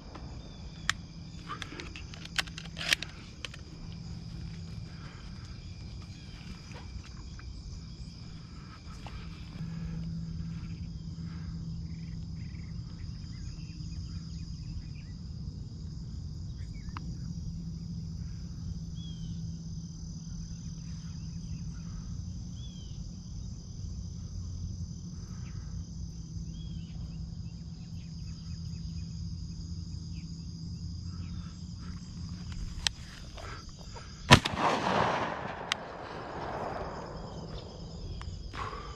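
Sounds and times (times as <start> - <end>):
insects droning: 0.0 - 38.9
low steady rumble: 0.0 - 38.9
sharp click: 34.3 - 36.9.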